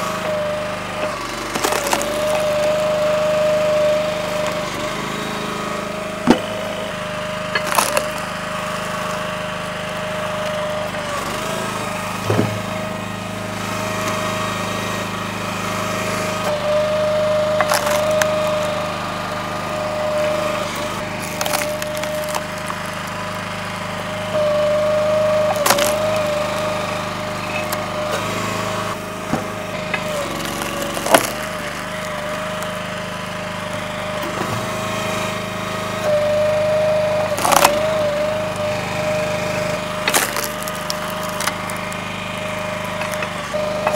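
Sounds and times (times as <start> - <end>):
log splitter engine drone: 0.0 - 43.9
wood splitting cracks: 0.1 - 4.8, 6.2 - 6.8, 7.4 - 9.1, 17.2 - 23.7, 24.8 - 28.3, 29.3 - 34.8, 37.2 - 43.9.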